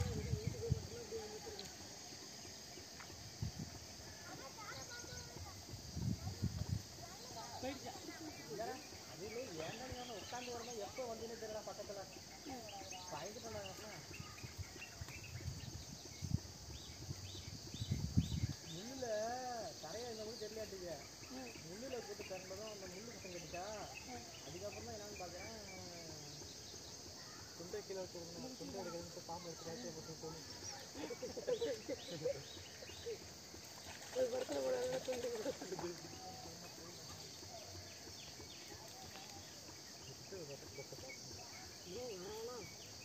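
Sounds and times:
people talking: 0.0s - 2.2s, 4.1s - 14.6s, 34.1s - 37.9s
faint distant voices: 0.0s - 17.6s
crickets chirping: 0.0s - 43.0s.

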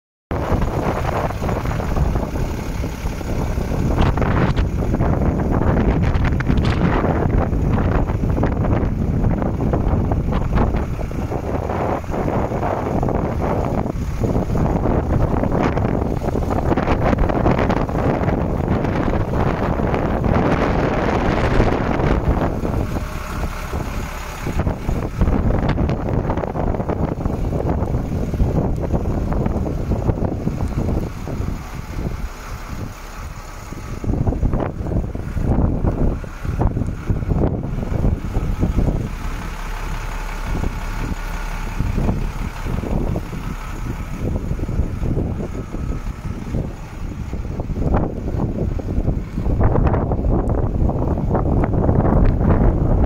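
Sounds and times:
truck diesel engine idling: 0.3s - 53.0s
wind buffeting microphone: 0.3s - 53.0s.

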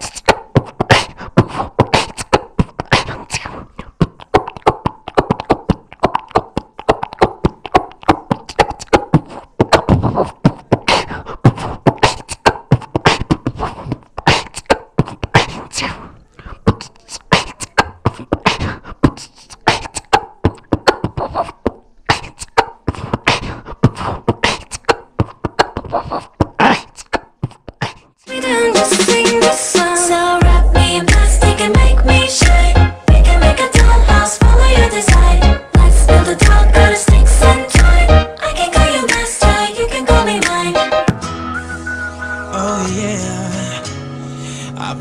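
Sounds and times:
person beatboxing: 0.0s - 40.9s
recorded music: 28.3s - 45.0s.

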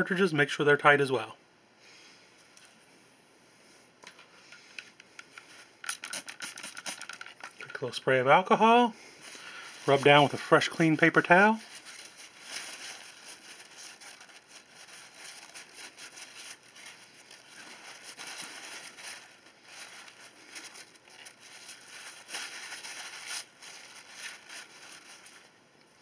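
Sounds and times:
paper towel rustling and crinkling: 5.4s - 26.0s.

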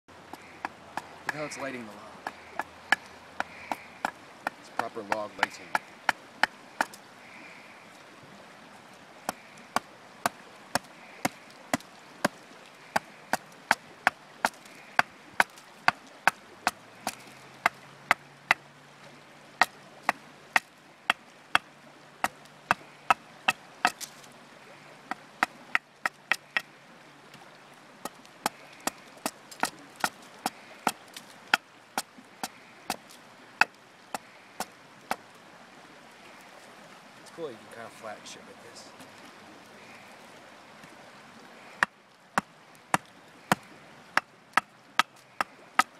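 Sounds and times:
axe chopping wood: 2.2s - 7.0s, 9.3s - 12.4s, 13.0s - 18.6s, 19.6s - 24.2s, 28.0s - 33.0s, 42.9s - 45.9s.

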